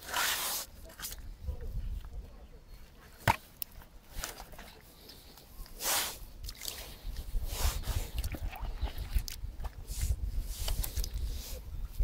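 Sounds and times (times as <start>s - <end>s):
water sloshing and dripping: 8.1s - 9.9s.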